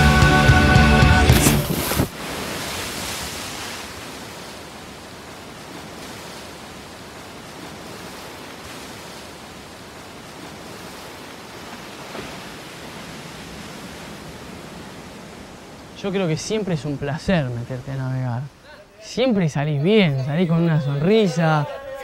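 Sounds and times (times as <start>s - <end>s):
loud music: 0.0s - 1.7s
choppy water: 1.0s - 22.0s.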